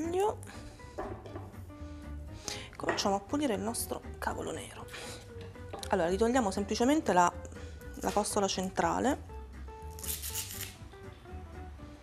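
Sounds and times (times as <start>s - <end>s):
background music melody: 0.0s - 12.0s
kale leaf tearing: 9.9s - 10.8s.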